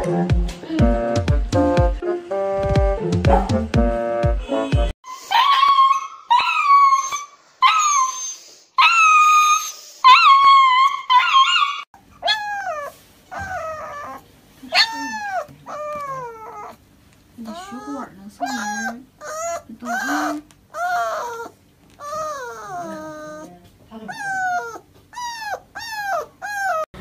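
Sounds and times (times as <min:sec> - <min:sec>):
dog howling and wailing: 0:05.1 - 0:16.8, 0:17.5 - 0:23.5, 0:24.1 - 0:26.9
puppy crying: 0:05.1 - 0:16.8, 0:17.4 - 0:26.9.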